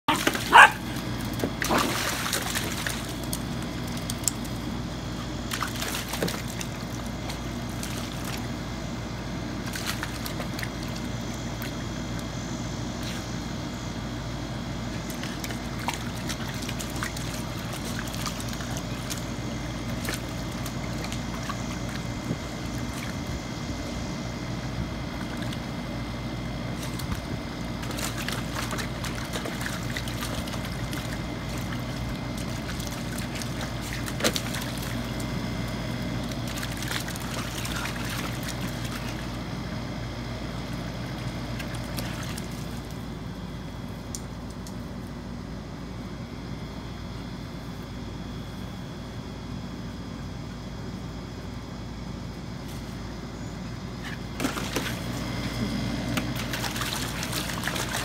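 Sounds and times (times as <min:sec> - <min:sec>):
steady low hum: 0:00.0 - 0:58.0
water splashing in a pool: 0:00.1 - 0:12.0, 0:14.9 - 0:24.0, 0:26.6 - 0:44.9, 0:54.0 - 0:58.0
water running from a hose: 0:54.4 - 0:58.0.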